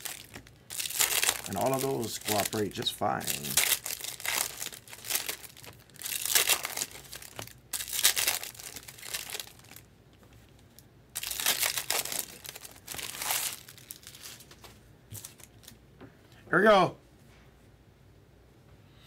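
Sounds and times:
foil wrappers tearing and crinkling: 0.0s - 9.9s, 11.2s - 15.7s.

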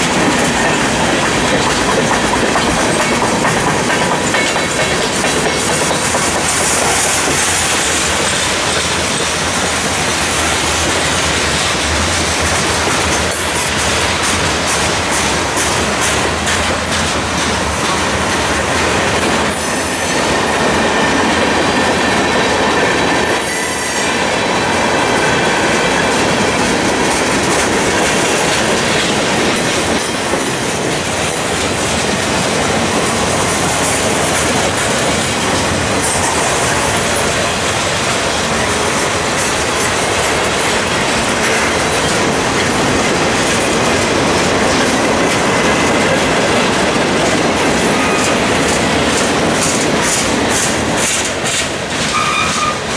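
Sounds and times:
train wheels clacking over rail joints: 0.0s - 52.9s
wheel squeal: 52.1s - 52.8s.

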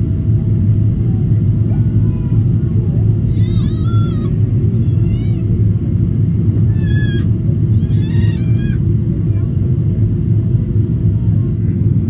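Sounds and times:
airplane cabin rumble: 0.0s - 12.0s
high-pitched squealing cries: 3.3s - 5.4s, 6.7s - 8.8s.

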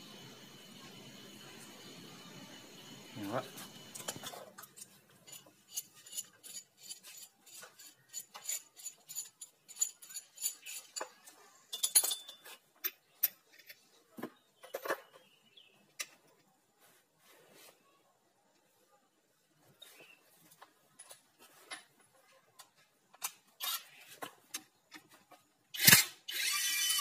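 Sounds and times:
tools clattering: 4.0s - 13.8s
steel sockets clinking: 11.7s - 13.8s.

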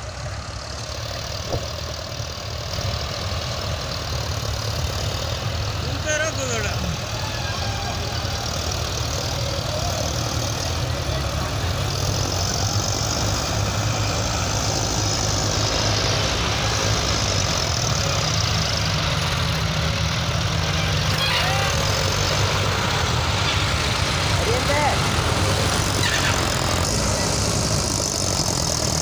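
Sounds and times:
tractor engines droning: 0.0s - 29.0s.

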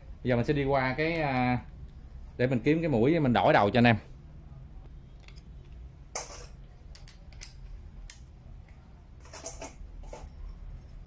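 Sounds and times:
screwdriver bits clicking and rattling: 6.9s - 8.2s.

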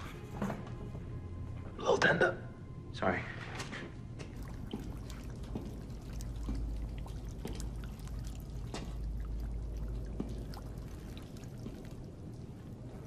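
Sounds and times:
low steady drone: 4.0s - 13.0s
water dripping into puddle: 4.2s - 13.0s.

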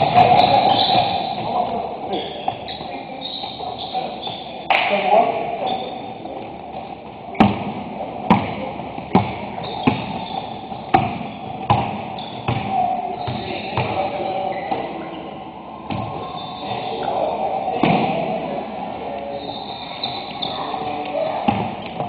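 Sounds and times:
basketball bouncing on wooden floor: 9.1s - 14.0s.

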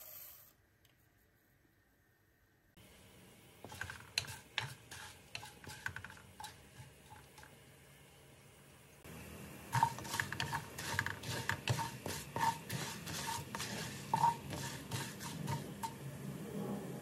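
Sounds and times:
wooden spoon scraping pot: 3.6s - 7.6s, 9.7s - 16.0s.

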